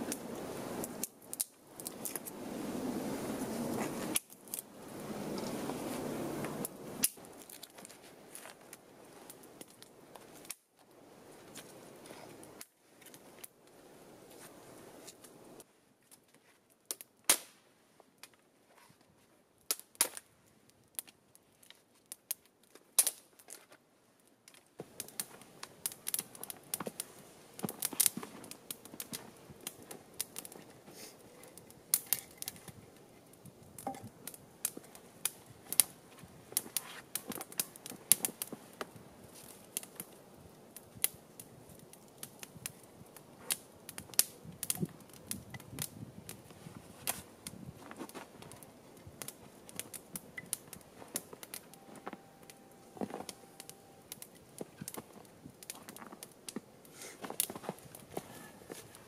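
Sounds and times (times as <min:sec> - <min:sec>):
campfire crackling and popping: 0:00.0 - 0:18.5, 0:19.5 - 0:59.0
faint steady hiss: 0:00.0 - 0:59.0
dry sticks snapping: 0:00.8 - 0:02.4, 0:03.7 - 0:04.7, 0:07.0 - 0:08.6, 0:21.0 - 0:23.6, 0:24.4 - 0:30.8, 0:31.4 - 0:32.8.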